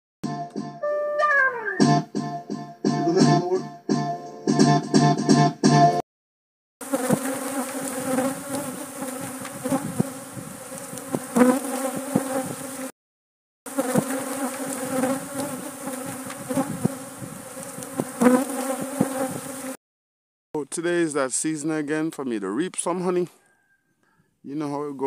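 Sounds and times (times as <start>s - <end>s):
bee flying past microphone: 6.8s - 12.9s, 13.7s - 19.8s
honeybees buzzing: 6.8s - 12.9s, 13.7s - 19.8s.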